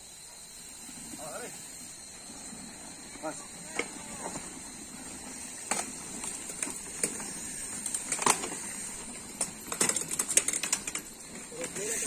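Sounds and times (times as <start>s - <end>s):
bike wheels knocking wooden planks: 5.2s - 12.0s.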